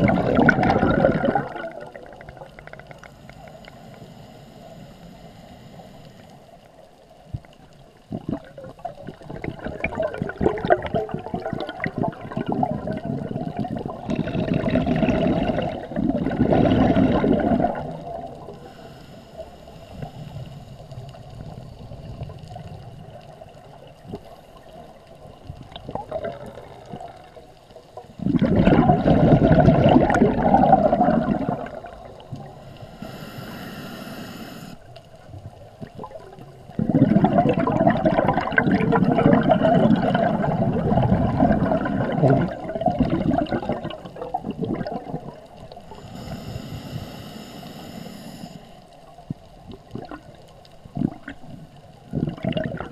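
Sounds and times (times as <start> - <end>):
underwater bubbles gurgling: 0.0 - 52.9
regulator hiss: 3.0 - 6.6, 18.3 - 21.9, 32.4 - 34.9, 45.8 - 48.9.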